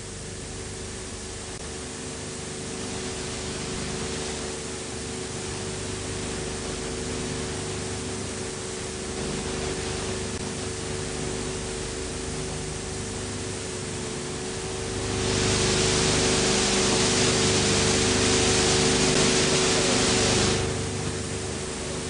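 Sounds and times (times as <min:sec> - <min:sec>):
steady film hiss: 0:00.0 - 0:22.0
steady hum: 0:00.0 - 0:22.0.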